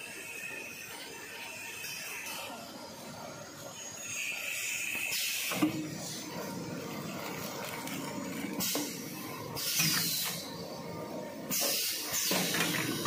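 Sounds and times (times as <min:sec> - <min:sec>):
pneumatic cylinders hissing air: 0:04.0 - 0:06.4, 0:08.6 - 0:10.8, 0:11.4 - 0:13.0.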